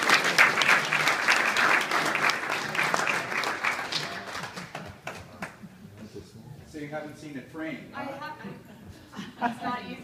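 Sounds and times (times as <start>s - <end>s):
people applauding: 0.0s - 5.6s.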